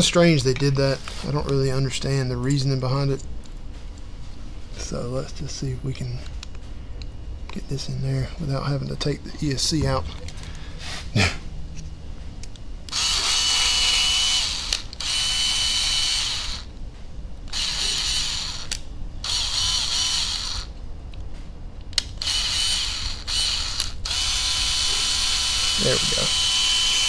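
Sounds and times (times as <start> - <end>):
electric screwdriver whining: 12.9 - 16.7, 17.5 - 20.7, 22.0 - 27.0.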